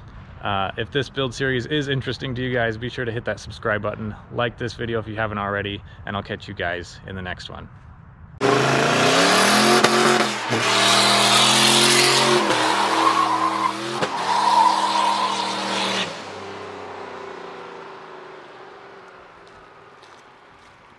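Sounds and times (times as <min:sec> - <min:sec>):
engine revving high: 0:08.4 - 0:19.7
tyres spinning and squealing: 0:08.4 - 0:20.0.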